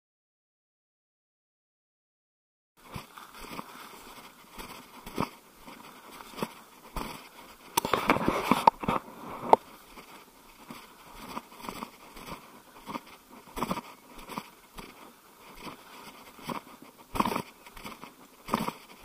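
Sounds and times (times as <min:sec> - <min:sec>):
undergrowth crackling and rustling: 0:02.8 - 0:19.0.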